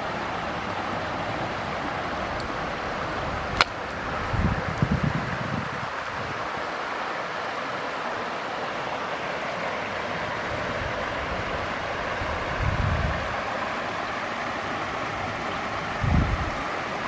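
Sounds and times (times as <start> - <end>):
stream flowing over rocks: 0.0 - 17.0
wind rumble on microphone: 0.6 - 6.7, 10.5 - 13.5, 15.1 - 17.0.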